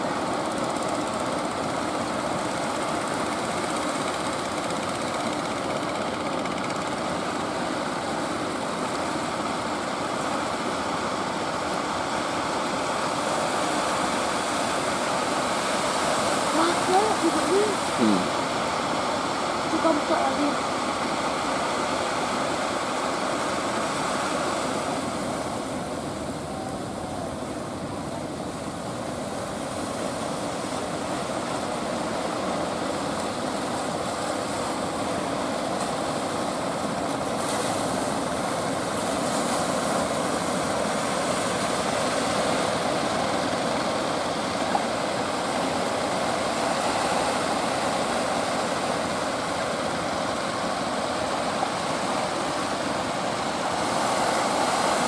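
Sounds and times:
boat engines droning: 0.0 - 55.0
surf and breaking waves: 0.0 - 55.0.

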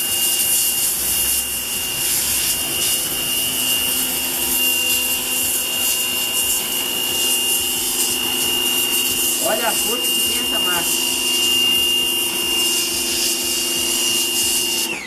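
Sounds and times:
pressure washer motor whine: 0.0 - 15.0
water jet hissing on brick: 0.0 - 15.0.

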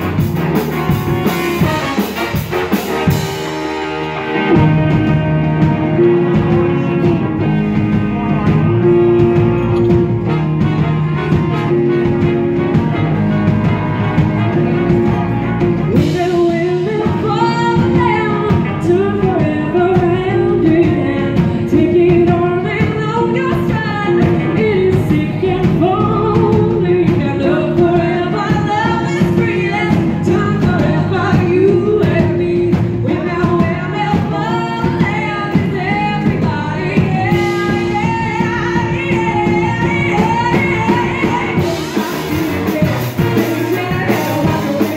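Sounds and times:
bass guitar: 0.0 - 44.9
drums: 0.0 - 44.9
electric guitar: 0.0 - 44.9
horn section: 0.0 - 44.9
woman singing: 13.7 - 44.9.

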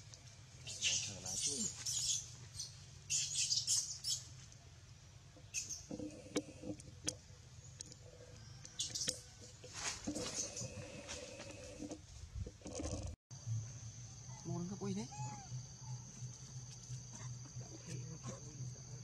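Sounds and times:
baby monkey squeaking: 0.7 - 4.3.

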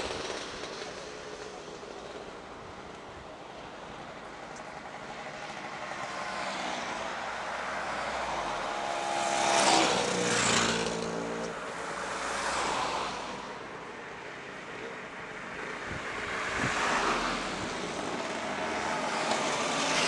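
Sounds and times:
motor scooters passing: 4.7 - 14.0, 15.4 - 20.0
van passing: 4.9 - 14.1.

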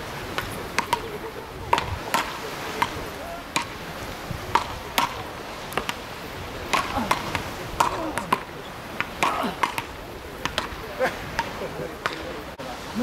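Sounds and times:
paddles hitting rubber ball: 0.3 - 6.0, 6.6 - 12.4.

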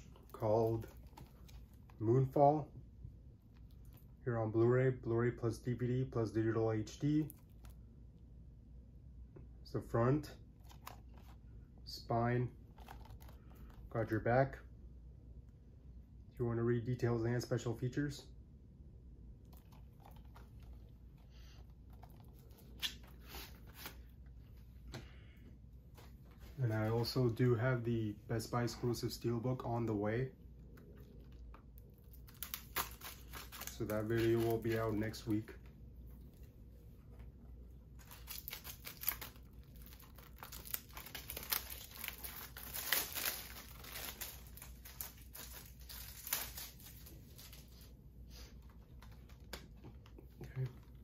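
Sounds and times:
plastic wrap crinkling and tearing: 12.7 - 13.8, 19.5 - 23.9, 30.8 - 35.5, 37.9 - 47.9.

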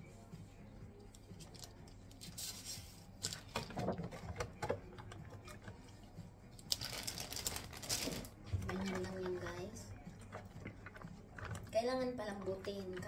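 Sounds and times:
rice paper wrappers crackling: 6.6 - 9.0.

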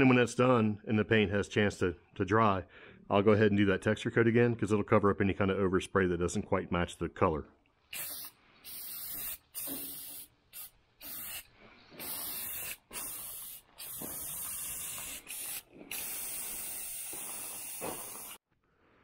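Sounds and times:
spray paint can hissing: 7.9 - 18.4.

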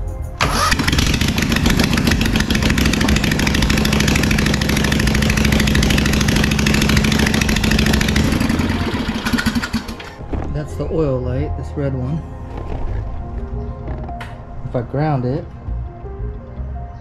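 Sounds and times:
mower engine running: 0.4 - 10.2.

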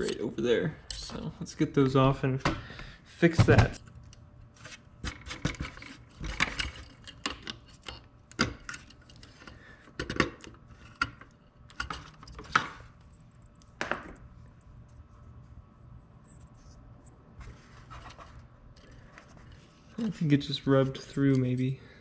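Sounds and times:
soft rubbing of plastic: 14.7 - 21.2.

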